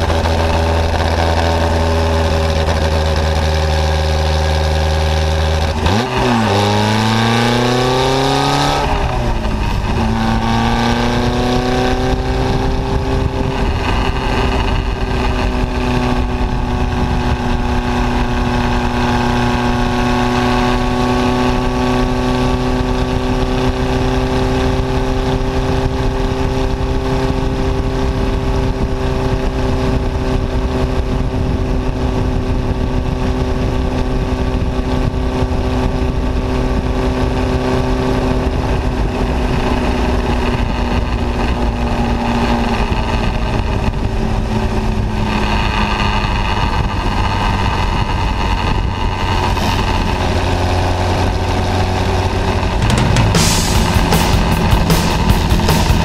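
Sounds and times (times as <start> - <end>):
race car engine revving: 0.0 - 29.0, 38.1 - 56.0
wind and road noise: 0.0 - 56.0.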